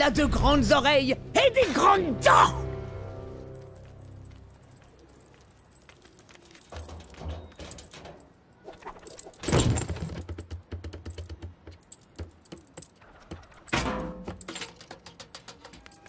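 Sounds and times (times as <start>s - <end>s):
claws clicking and knocking: 5.2s - 16.0s.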